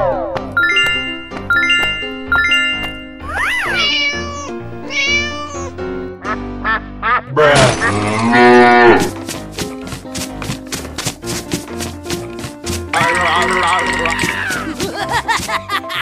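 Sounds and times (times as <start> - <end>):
upbeat background music: 0.2 - 16.0
cartoon cat meowing: 3.2 - 5.7.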